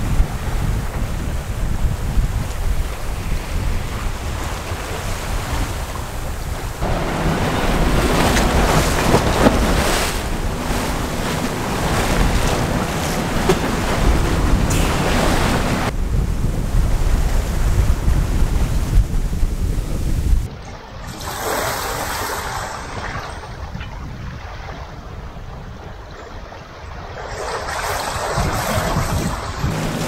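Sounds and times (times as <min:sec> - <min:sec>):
water rushing past hull: 0:00.0 - 0:19.6
wind buffeting microphone: 0:00.0 - 0:30.0.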